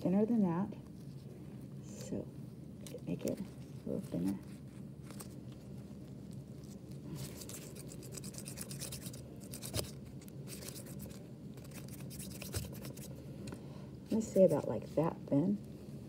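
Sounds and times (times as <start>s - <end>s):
gloved palms rubbing: 3.2s - 13.2s.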